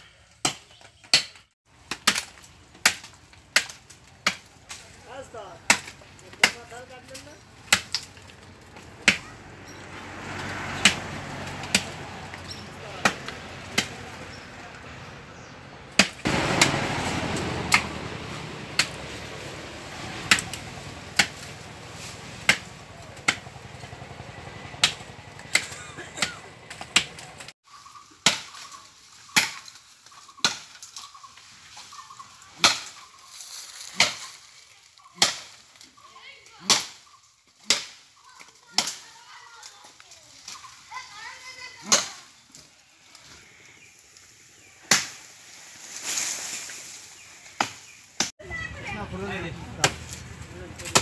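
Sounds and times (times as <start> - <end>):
axe chopping into wood: 0.4 - 4.8, 5.7 - 6.7, 7.7 - 8.1, 9.0 - 9.2, 10.8 - 11.0, 11.6 - 12.0, 13.0 - 14.0, 15.9 - 16.8, 18.8 - 19.0, 20.3 - 20.5, 21.2 - 21.4, 22.4 - 23.4, 24.8 - 27.3, 28.2 - 28.6, 29.3 - 29.7, 30.4 - 30.8, 32.6 - 33.0, 33.9 - 34.3, 35.2 - 35.6, 36.6 - 37.0, 37.6 - 38.0, 38.7 - 39.0, 41.8 - 42.2, 44.8 - 45.3, 47.6 - 48.3, 49.8 - 50.2, 50.8 - 51.0
blade chopping into wood: 10.8 - 11.0, 11.6 - 12.0, 15.9 - 16.8, 20.3 - 21.5, 22.4 - 23.4, 24.8 - 27.5, 32.6 - 33.0, 35.2 - 35.6, 44.8 - 45.3, 50.8 - 51.0.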